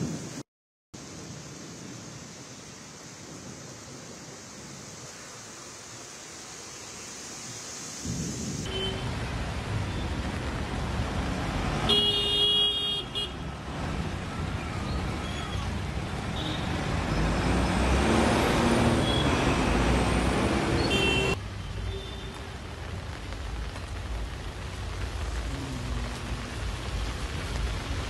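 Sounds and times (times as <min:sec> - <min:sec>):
heavy rain: 0:01.0 - 0:28.0
traffic on wet road: 0:01.8 - 0:28.0
car horn honking: 0:11.9 - 0:13.4, 0:20.8 - 0:22.2.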